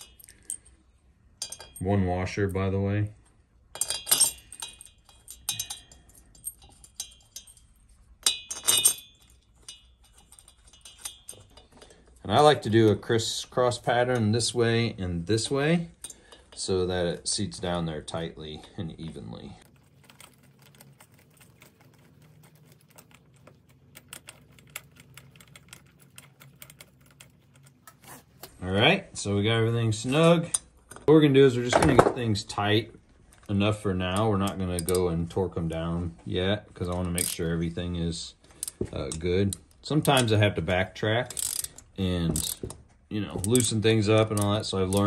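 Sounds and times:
bolts clinking on metal engine: 1.4 - 2.0, 3.7 - 13.0, 34.1 - 35.2, 41.3 - 45.0
ratchet wrench clicking: 41.3 - 42.7.

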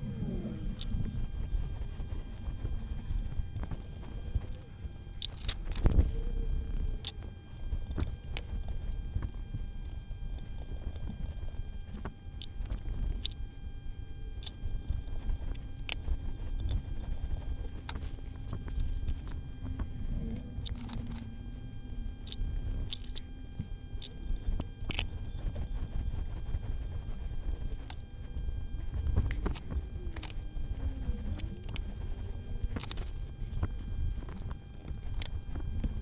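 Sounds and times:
metallic clicks and scraping: 4.5 - 8.6, 20.3 - 21.3, 22.2 - 25.3.

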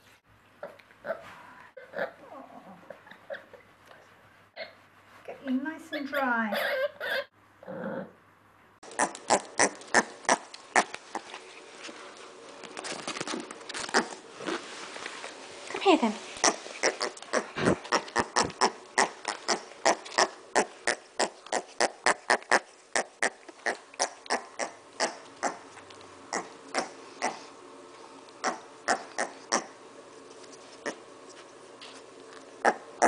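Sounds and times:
pig grunting and snuffling: 16.4 - 25.7, 26.3 - 27.6.

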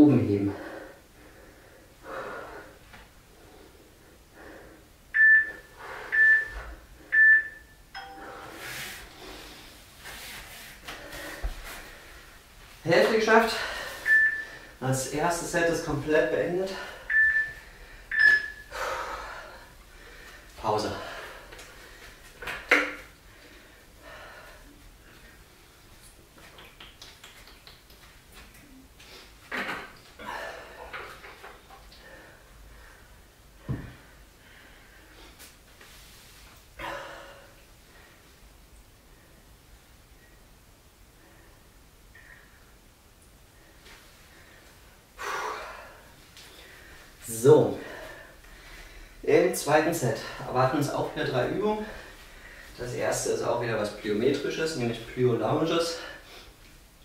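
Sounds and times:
person breathing: 0.5 - 5.0, 8.1 - 9.9, 13.4 - 14.8, 16.6 - 22.3, 23.2 - 25.4, 43.5 - 49.3, 51.8 - 52.8
lower-pitched timer beep: 5.2 - 8.6, 14.1 - 14.6, 17.1 - 18.7
short high timer beeps: 17.1 - 18.6.

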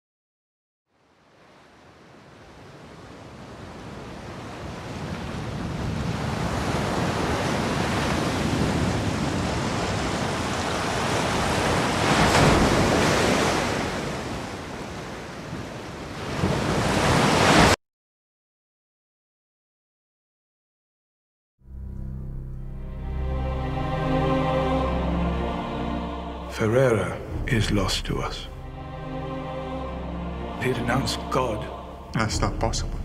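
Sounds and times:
sea waves crashing: 1.0 - 17.8, 23.2 - 33.0.

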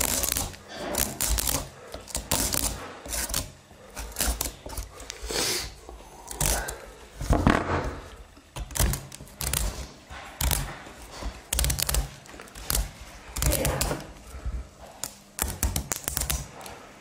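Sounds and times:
blade scraping pumpkin rind: 0.0 - 6.8.

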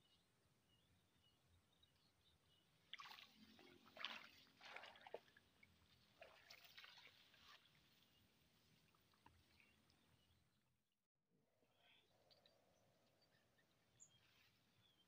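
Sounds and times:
faint water splashing: 2.8 - 10.3.

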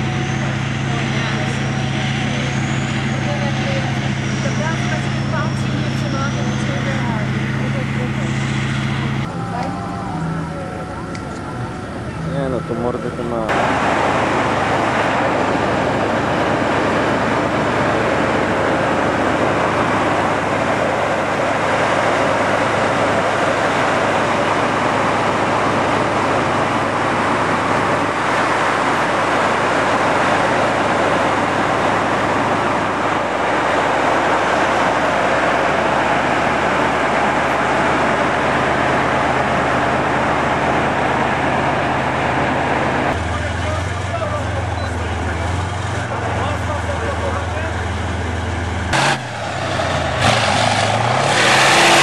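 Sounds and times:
tank diesel engine running: 0.0 - 52.0.

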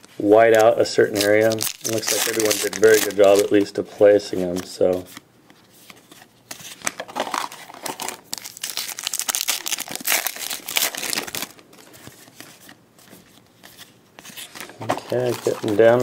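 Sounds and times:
cards rustling: 0.2 - 16.0
foil wrapper crinkling: 0.6 - 3.7, 7.2 - 12.2, 14.4 - 16.0.

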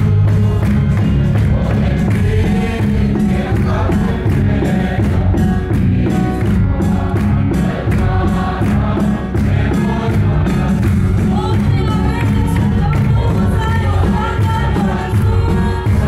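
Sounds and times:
beating drums: 0.0 - 16.0
congregation singing a hymn: 0.0 - 16.0.

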